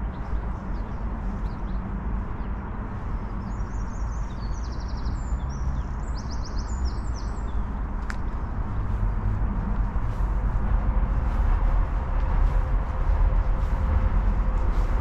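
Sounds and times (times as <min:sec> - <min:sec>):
small birds trilling: 0:00.0 - 0:09.0
low city rumble: 0:00.0 - 0:15.0.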